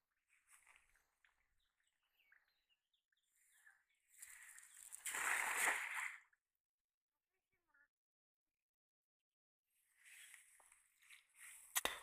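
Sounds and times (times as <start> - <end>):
cast net splashing on water: 4.3 - 6.3.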